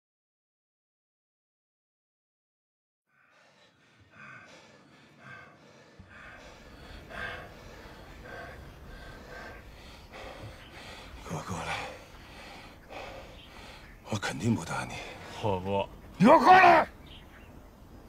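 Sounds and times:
man breathing hard: 0:03.2 - 0:14.0, 0:14.8 - 0:15.4.

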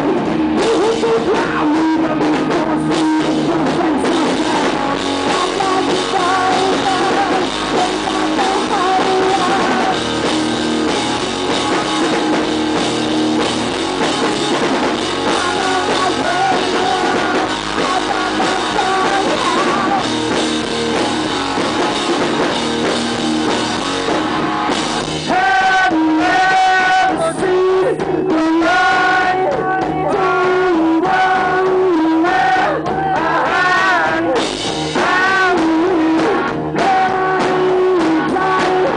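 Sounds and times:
person singing: 0:00.0 - 0:10.3, 0:14.6 - 0:20.9, 0:25.2 - 0:38.9
bass guitar: 0:00.0 - 0:38.9
drums: 0:00.0 - 0:38.9
electric guitar: 0:00.0 - 0:38.9.

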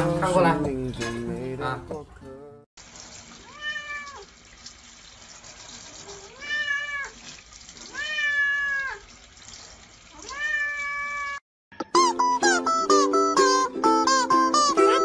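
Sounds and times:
cat meowing: 0:03.4 - 0:04.3, 0:06.1 - 0:07.2, 0:07.9 - 0:09.0, 0:10.2 - 0:11.4.

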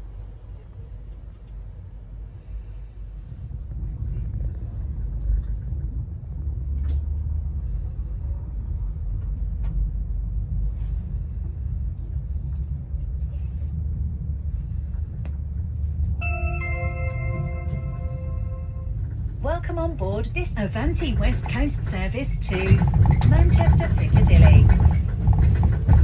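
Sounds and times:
electric train rumble: 0:00.0 - 0:26.0
announcement chime: 0:16.2 - 0:19.0
public address announcement: 0:16.2 - 0:25.2.

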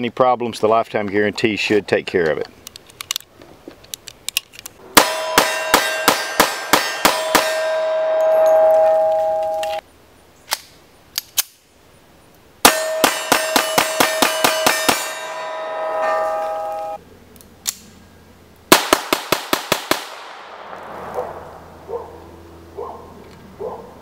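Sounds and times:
steel target ringing: 0:04.9 - 0:09.8, 0:12.6 - 0:17.0
pistol fire: 0:05.0 - 0:07.7, 0:18.7 - 0:21.5.

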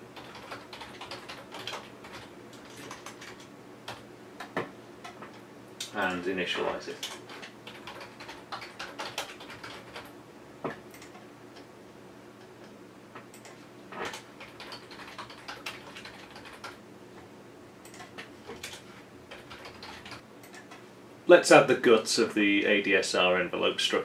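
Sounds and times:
typing on computer keyboard: 0:00.2 - 0:05.4, 0:07.0 - 0:10.1, 0:13.3 - 0:16.8, 0:17.8 - 0:20.8.

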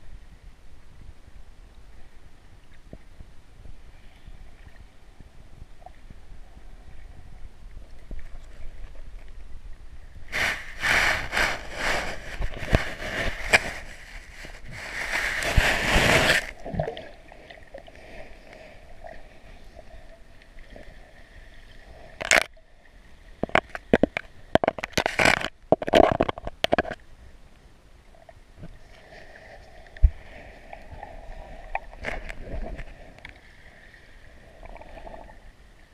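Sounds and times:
underwater clicks and scraping: 0:06.9 - 0:09.6, 0:10.3 - 0:20.9, 0:21.6 - 0:22.6, 0:23.3 - 0:27.1, 0:28.2 - 0:35.5.

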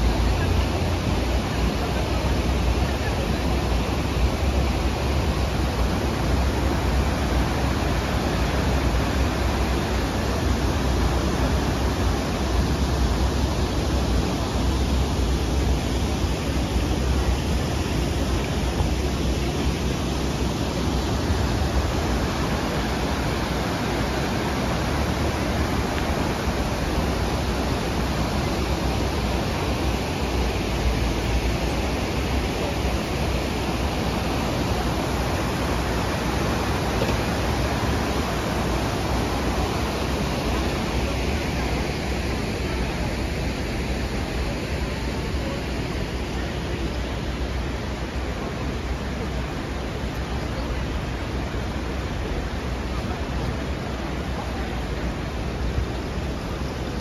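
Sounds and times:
city hum: 0:00.0 - 0:57.0
faint murmur of passers-by: 0:00.0 - 0:57.0
water flowing in a stream: 0:00.0 - 0:57.0.

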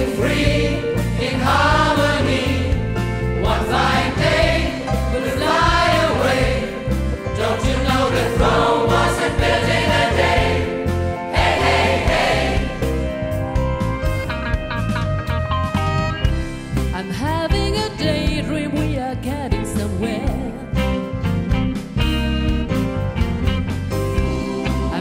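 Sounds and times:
gospel choir singing: 0:00.0 - 0:13.3
live band with bass line: 0:00.0 - 0:25.0.

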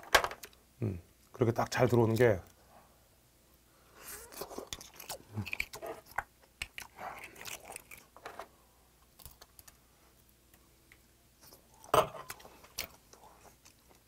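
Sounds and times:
slurping and chewing: 0:04.0 - 0:08.2.

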